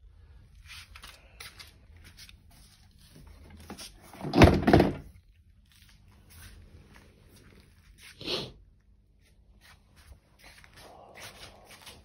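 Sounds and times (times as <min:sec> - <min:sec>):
vacuum cleaner thunking onto floor: 0:04.2 - 0:05.1.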